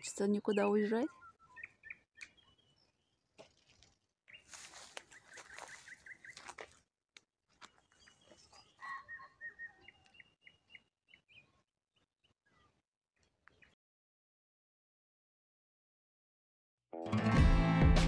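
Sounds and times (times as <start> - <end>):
small birds chirping: 0.0 - 6.8, 7.5 - 13.8.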